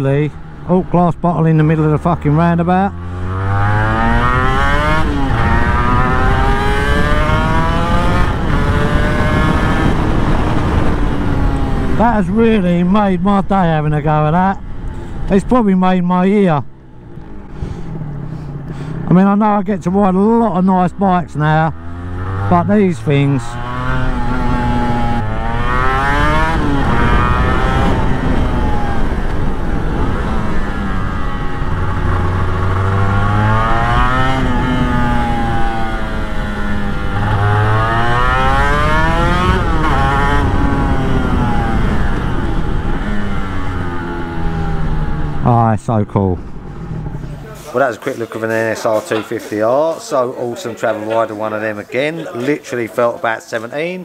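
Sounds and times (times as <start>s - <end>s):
motorcycle engine accelerating: 0.0s - 47.8s
wind rush: 3.7s - 13.8s, 23.3s - 45.5s.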